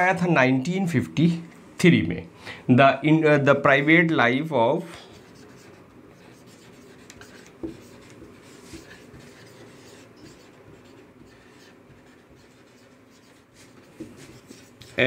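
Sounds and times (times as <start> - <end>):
marker writing on whiteboard: 4.9 - 15.0.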